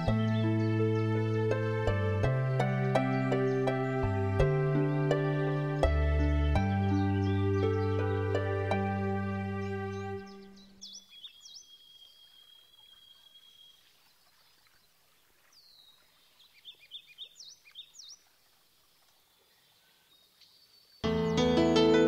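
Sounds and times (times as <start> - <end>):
soft music: 0.0 - 10.8, 21.0 - 22.0
songbirds chirping: 0.0 - 22.0.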